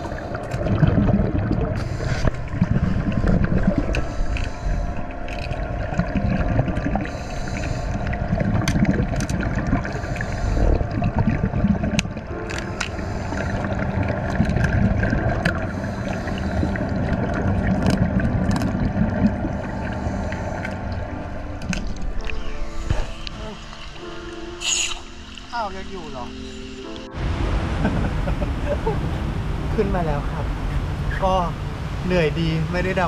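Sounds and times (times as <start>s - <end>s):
underwater low rumble: 0.0s - 33.0s
bubbling hiss bursts: 24.6s - 25.2s
faint constant hum: 27.2s - 33.0s.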